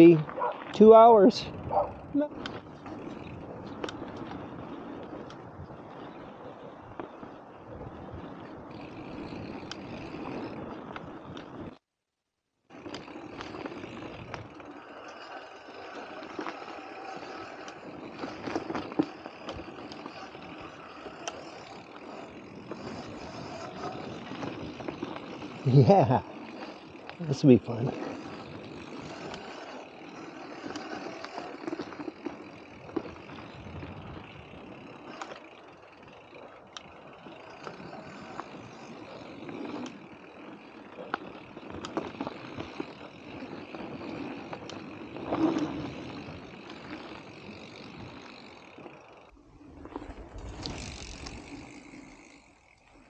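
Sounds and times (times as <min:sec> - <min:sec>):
bike tyres rolling on dirt: 0:00.0 - 0:11.9, 0:12.5 - 0:53.0
bike knocking and clattering: 0:12.7 - 0:49.3.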